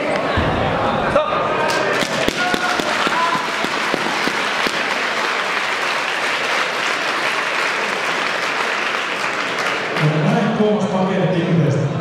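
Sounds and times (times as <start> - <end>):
audience applauding: 2.0 - 10.3.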